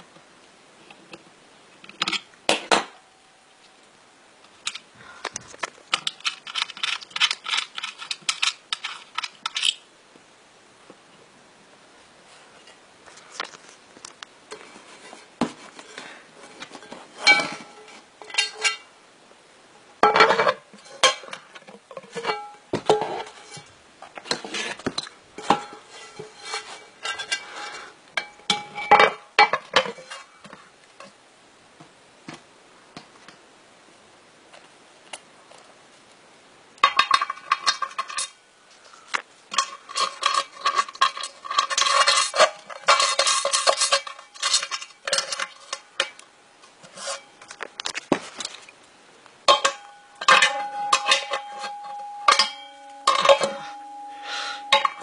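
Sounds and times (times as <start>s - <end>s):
electric alarm bell ringing: 49.8s - 54.8s.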